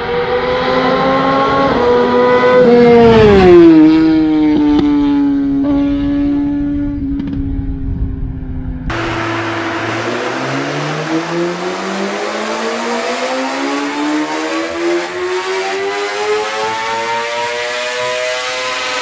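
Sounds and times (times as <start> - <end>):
motorcycle engine revving up: 8.9 - 19.0.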